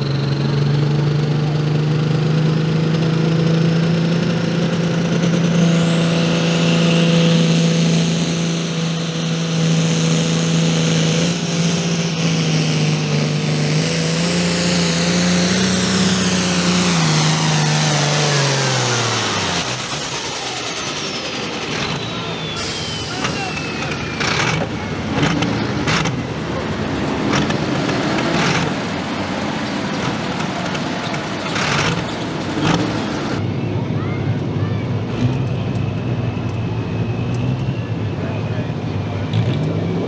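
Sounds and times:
tractor diesel engine at full throttle: 0.0 - 40.0
high turbo whistle: 18.3 - 24.6.

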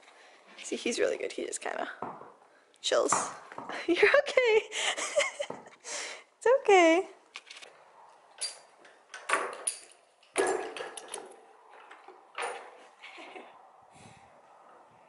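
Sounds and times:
knocks and scuffs on concrete floor: 2.0 - 2.4.

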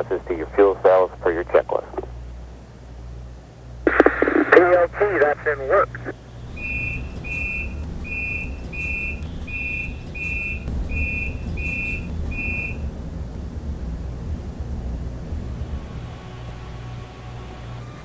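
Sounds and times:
steady low rumble: 0.0 - 18.0
short high electronic beeps: 6.6 - 12.8.

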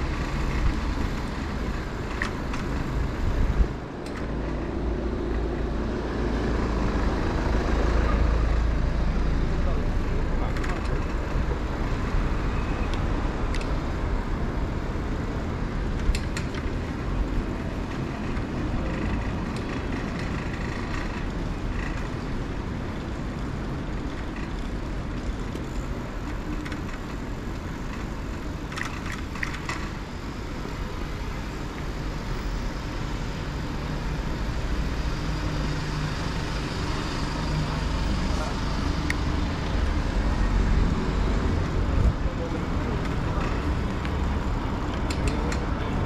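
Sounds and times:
road traffic rumble: 0.0 - 46.0.

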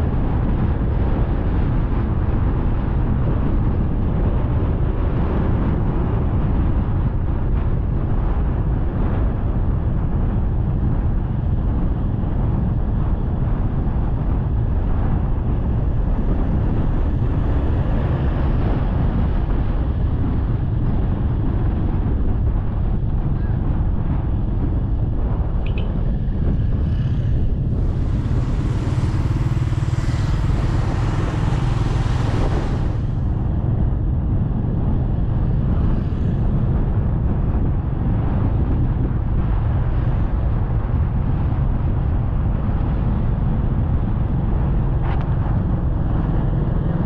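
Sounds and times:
tyre noise on road: 0.0 - 47.0
wind buffeting microphone: 0.0 - 47.0
motorcycle engine: 24.4 - 38.1.

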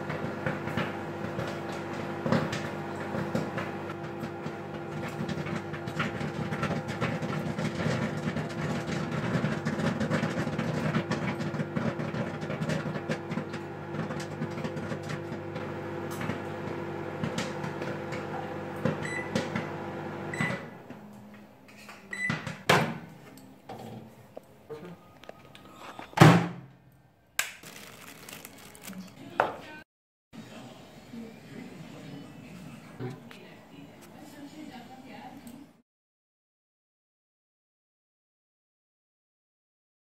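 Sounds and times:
popcorn popping: 0.0 - 19.8, 27.4 - 29.8
microwave oven humming: 0.0 - 22.5.

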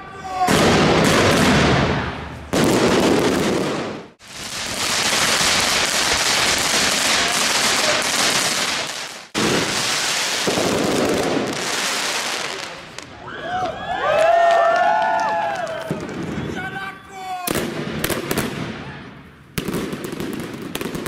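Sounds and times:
fireworks crackling: 0.1 - 13.2, 17.4 - 21.0.

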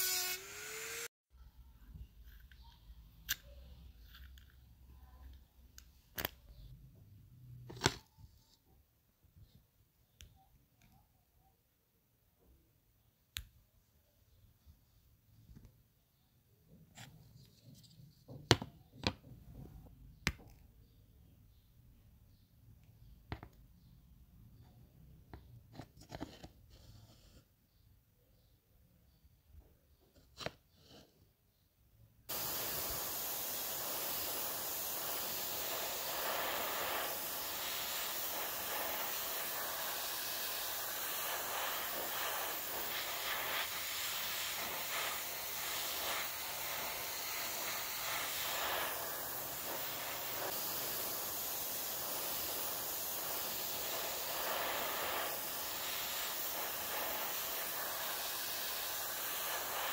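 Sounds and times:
spray paint hissing: 32.3 - 59.9.

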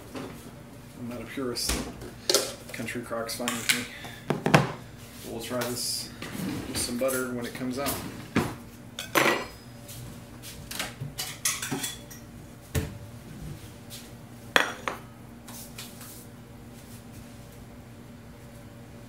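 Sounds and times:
dishes and cutlery clinking: 9.0 - 9.6, 11.2 - 12.2.

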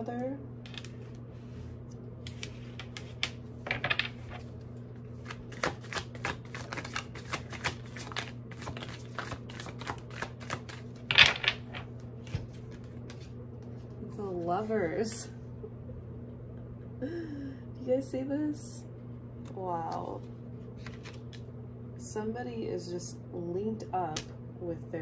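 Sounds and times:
steady low hum: 0.0 - 25.0
cards being shuffled: 1.9 - 13.8, 20.2 - 21.5.

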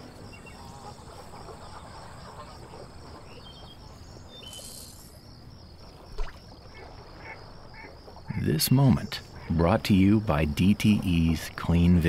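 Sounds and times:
insect chirping: 0.0 - 12.0
short bird chirps: 4.4 - 5.1.

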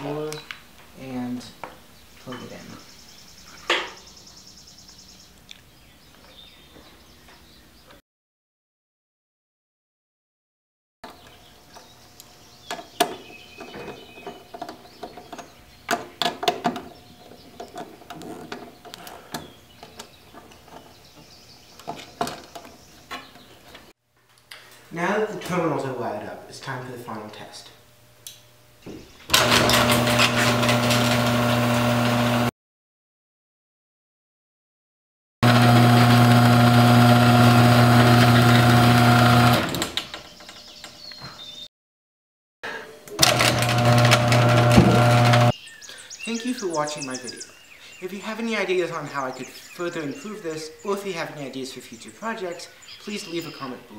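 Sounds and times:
garage door opener motor and chain: 29.3 - 32.5, 35.4 - 40.9, 43.1 - 45.6.

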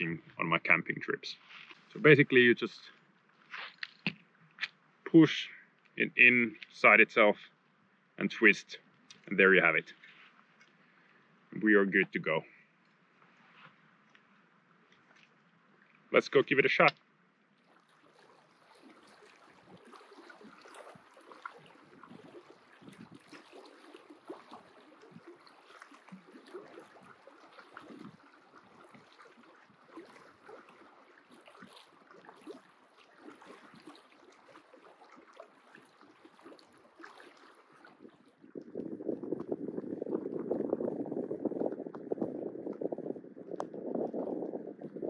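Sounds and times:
small waves lapping on rocks: 16.8 - 42.8.

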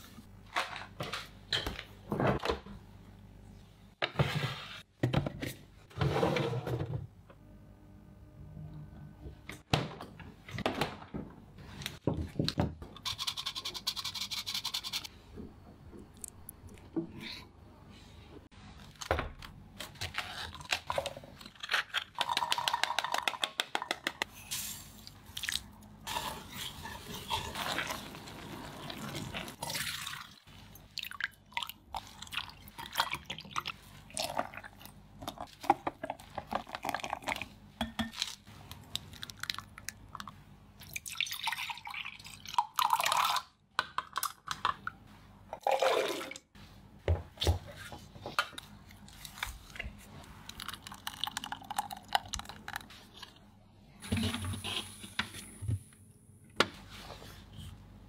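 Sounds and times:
liquid pouring and dripping: 50.5 - 52.9.

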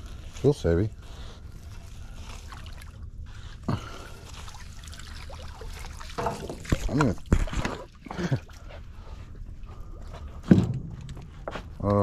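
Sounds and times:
water trickling and dripping: 0.0 - 11.4
steady low rumble: 8.3 - 12.0.

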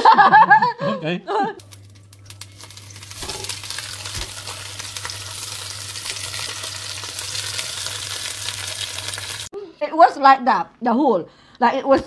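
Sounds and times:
sausages sizzling in a frying pan: 1.6 - 9.5.

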